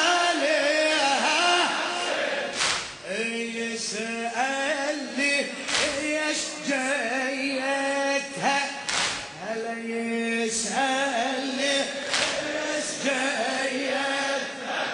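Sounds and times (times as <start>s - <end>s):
man chanting unaccompanied: 0.0s - 2.0s, 3.0s - 14.6s
rhythmic chest-beating slaps: 2.1s - 3.1s, 5.2s - 6.9s, 8.6s - 9.4s, 11.6s - 13.2s.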